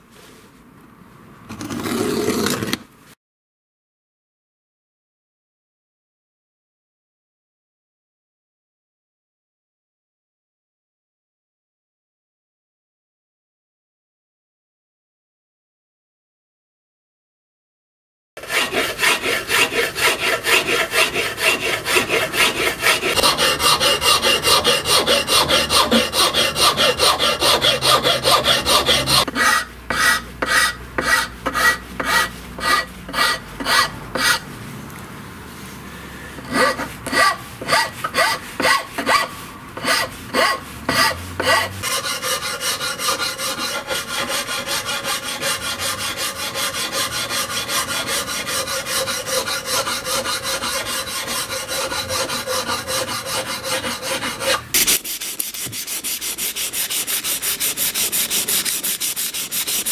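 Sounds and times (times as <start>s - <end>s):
hand file rasping on wood: 18.4s - 34.4s, 36.4s - 59.9s.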